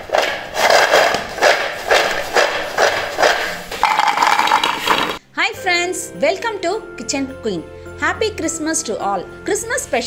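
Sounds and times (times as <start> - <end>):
fried snacks rattling in steel bowl: 0.1 - 5.2.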